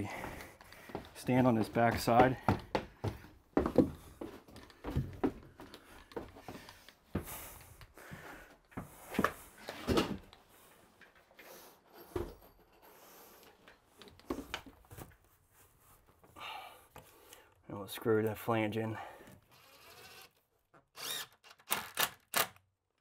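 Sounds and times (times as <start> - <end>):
footsteps knocking on shower base: 1.5 - 4.0.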